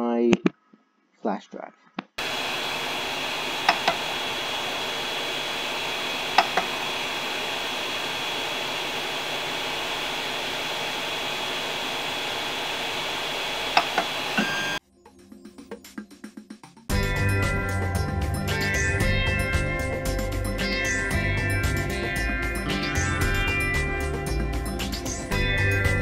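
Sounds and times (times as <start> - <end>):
steady hiss: 2.2 - 14.8.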